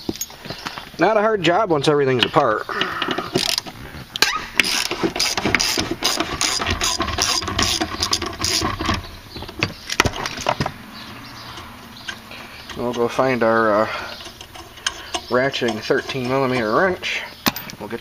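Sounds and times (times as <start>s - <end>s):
ratchet wrench clicking: 3.3s - 3.6s, 14.2s - 16.8s.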